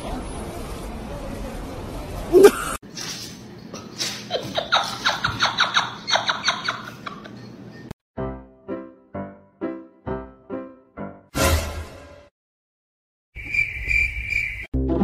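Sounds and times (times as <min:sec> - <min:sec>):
person laughing: 0:02.3 - 0:02.8.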